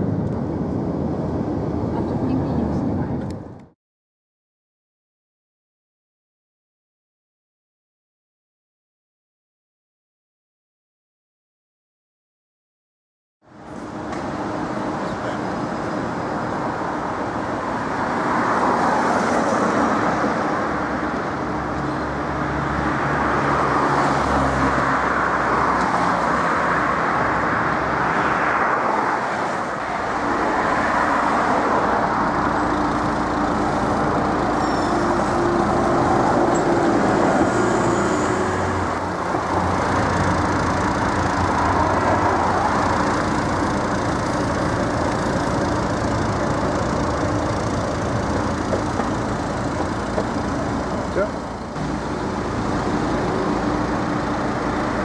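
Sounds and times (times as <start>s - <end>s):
passing cars and trams: 0.0s - 3.7s, 13.4s - 55.0s
motors humming: 31.2s - 55.0s.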